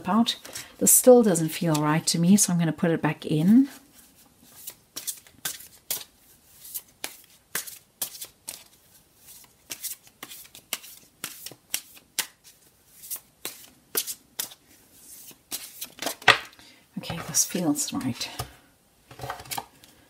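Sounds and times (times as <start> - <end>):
cards shuffled by hand: 3.9 - 16.6.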